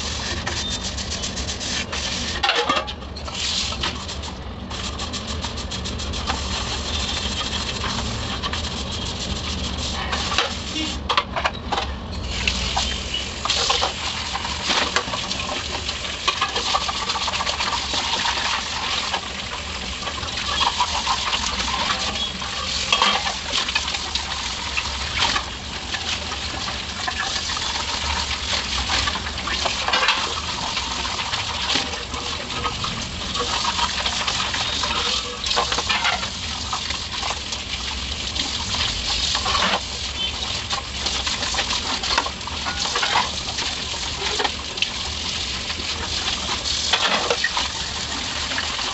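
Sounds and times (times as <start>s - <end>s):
tap water running onto plates: 0.0s - 11.1s, 12.3s - 48.9s.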